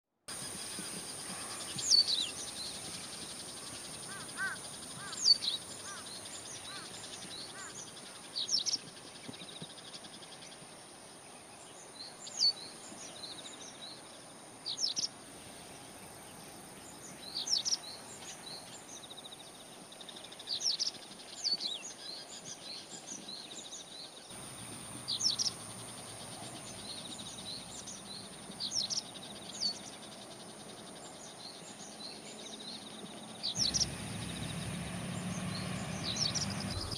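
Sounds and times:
birds chirping: 0:00.3 - 0:10.5, 0:14.7 - 0:36.9
insect drone: 0:00.3 - 0:22.5, 0:24.3 - 0:36.9.

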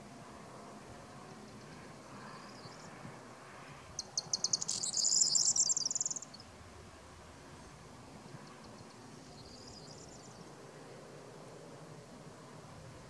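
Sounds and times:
bird song crackling jangle: 0:04.0 - 0:06.4.

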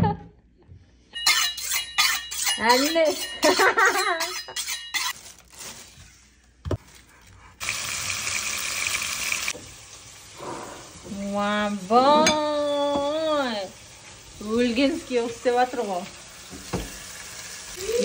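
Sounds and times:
meat and onions sizzling: 0:07.6 - 0:18.0.

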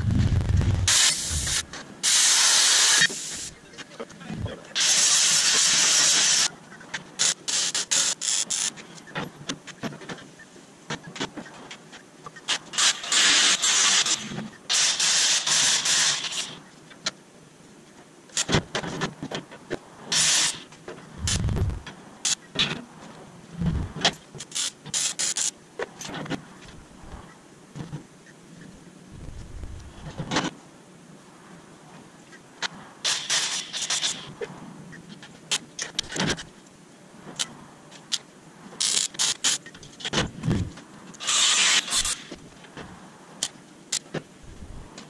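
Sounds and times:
hissing scraping bursts: 0:00.0 - 0:03.6, 0:04.7 - 0:06.5, 0:12.5 - 0:16.6, 0:20.1 - 0:22.4, 0:33.0 - 0:34.4, 0:41.2 - 0:42.4
dull thuds: 0:23.6 - 0:24.0.

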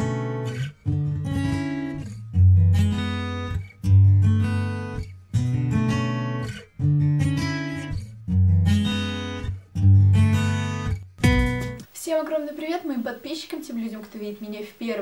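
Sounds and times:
strummed guitar chords: 0:00.0 - 0:11.9.

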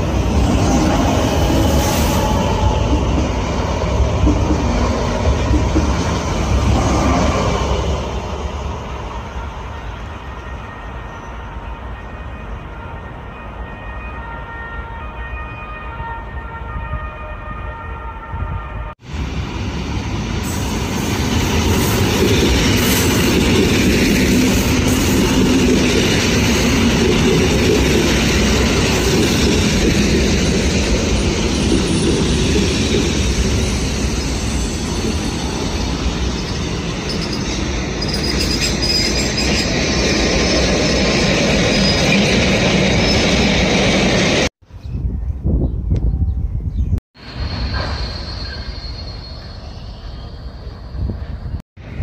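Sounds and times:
electric train wheels on rails: 0:00.0 - 0:10.4, 0:19.0 - 0:44.5, 0:47.2 - 0:52.0
faint high squeals: 0:47.3 - 0:51.1.

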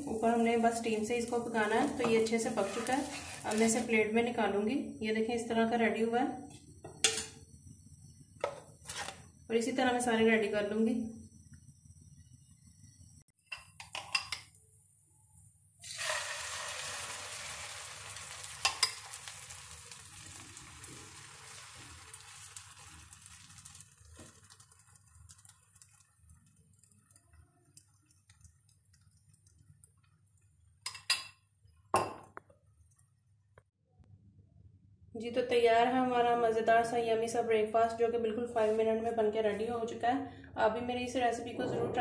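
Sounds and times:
egg sizzling in a frying pan: 0:00.0 - 0:04.5, 0:15.8 - 0:31.3.

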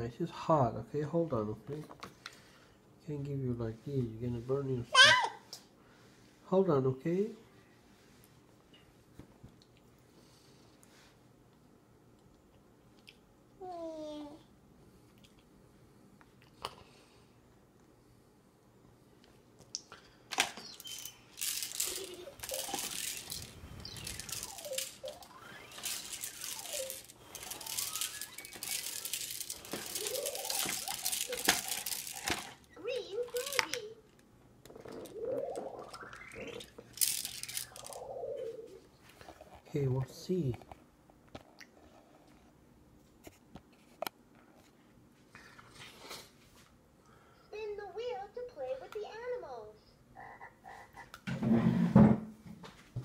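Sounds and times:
squeaky gliding tones: 0:20.6 - 0:32.2, 0:35.0 - 0:36.8.

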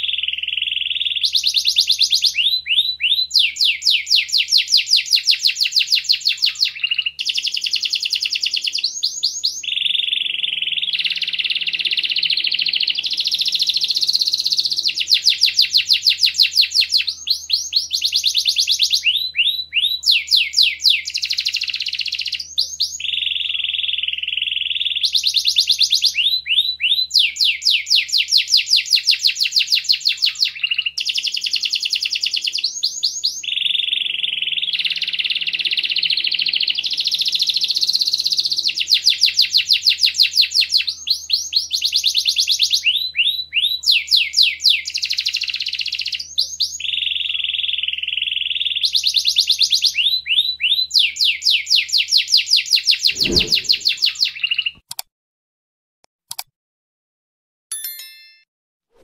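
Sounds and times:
canary singing: 0:00.0 - 0:31.4.

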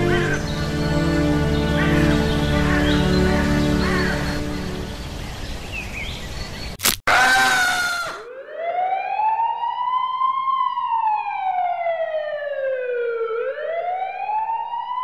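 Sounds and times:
sharp click: 0:06.8 - 0:07.1
siren wail: 0:07.1 - 0:15.0.

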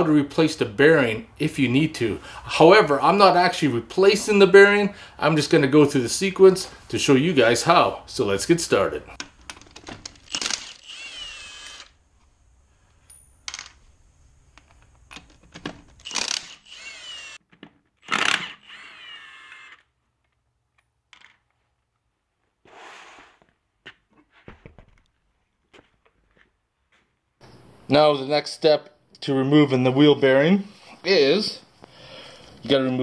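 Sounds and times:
impact wrench spinning: 0:09.6 - 0:12.0, 0:16.0 - 0:17.4, 0:18.0 - 0:19.9
sharp metallic clicks: 0:15.1 - 0:17.4.

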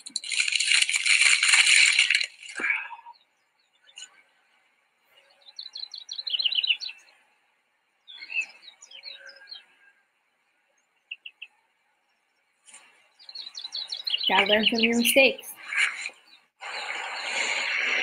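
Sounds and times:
songbird singing: 0:02.6 - 0:18.0
bird chirps: 0:05.1 - 0:07.2, 0:08.0 - 0:10.0, 0:10.8 - 0:18.0.

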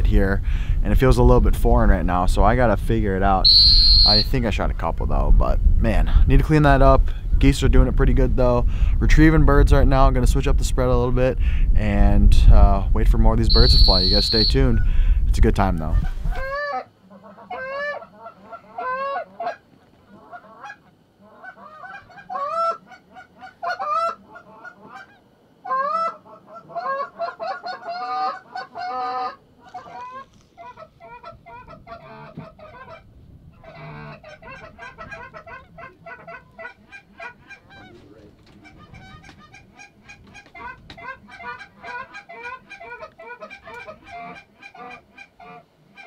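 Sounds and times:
geese honking: 0:03.4 - 0:04.4, 0:13.5 - 0:14.9, 0:16.3 - 0:33.0, 0:33.6 - 0:46.0.

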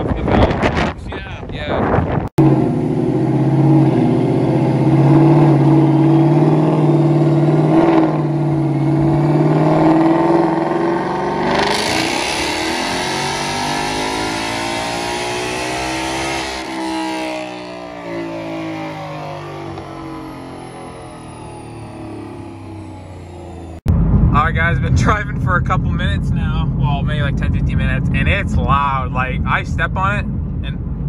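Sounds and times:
engine revving blip: 0:03.6 - 0:25.6
car engine idling deeply: 0:18.8 - 0:31.0.

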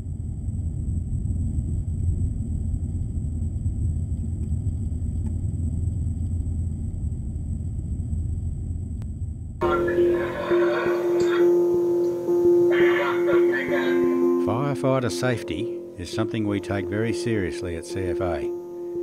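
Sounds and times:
fire burning rumble: 0:00.0 - 0:09.6
thin high whine: 0:09.6 - 0:19.0.

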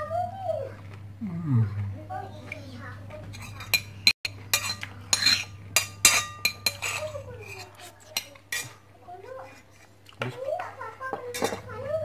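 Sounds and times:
spoon clinking on ceramic plate: 0:03.3 - 0:07.6.

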